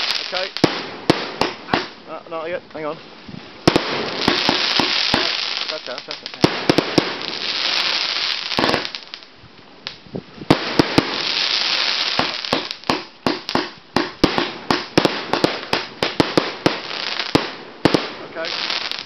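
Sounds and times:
firework bangs: 0.0s - 2.2s, 3.6s - 9.3s, 9.9s - 19.0s
fizzing crackling hiss: 0.0s - 2.2s, 3.6s - 9.3s
rapid firework reports: 0.0s - 3.1s, 3.7s - 7.5s, 10.6s - 13.1s, 17.4s - 18.9s.

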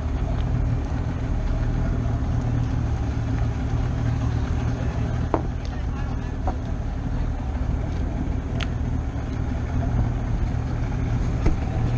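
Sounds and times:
boat engine idling: 0.0s - 11.9s.

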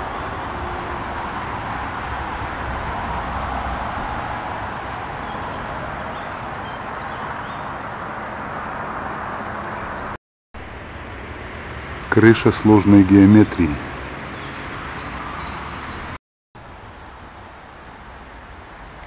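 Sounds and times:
high bird chirps: 3.8s - 7.8s.

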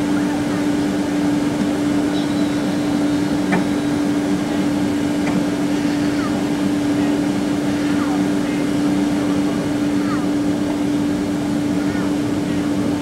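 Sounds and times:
jet engines rushing: 0.0s - 13.0s
steady low hum: 0.0s - 13.0s.

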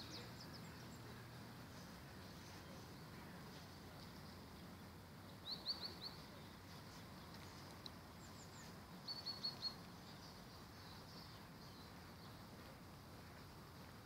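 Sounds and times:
faint background hiss: 0.0s - 14.0s
small bird chirping: 5.3s - 6.5s, 7.2s - 12.4s.

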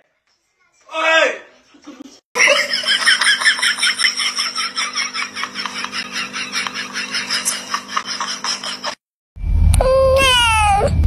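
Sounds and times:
person laughing: 1.9s - 9.0s.

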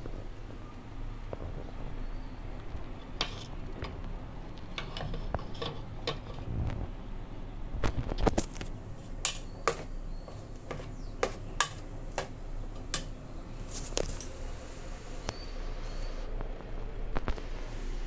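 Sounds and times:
spoon scraping metal pot: 3.0s - 3.6s, 4.7s - 6.5s, 9.2s - 13.0s.

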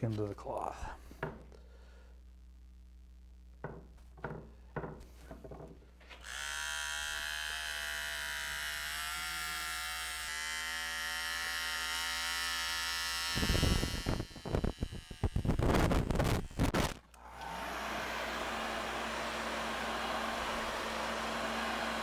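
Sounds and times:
heat gun whining: 6.1s - 22.0s.

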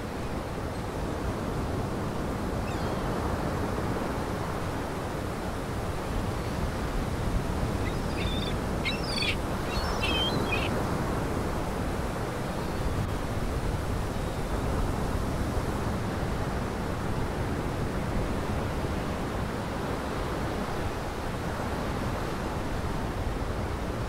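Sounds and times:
surf rushing: 3.5s - 12.1s
bird calling in short notes: 7.8s - 10.7s.

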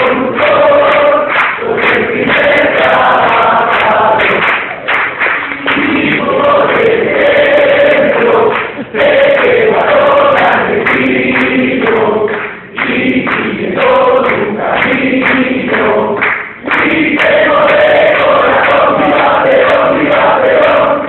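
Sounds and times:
voices singing in unison: 0.0s - 4.9s, 5.5s - 21.0s.

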